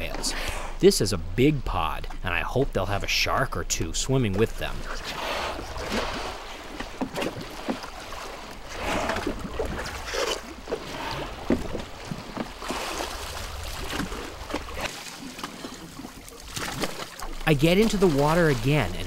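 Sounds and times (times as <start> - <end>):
water sloshing around boat: 0.0 - 19.0.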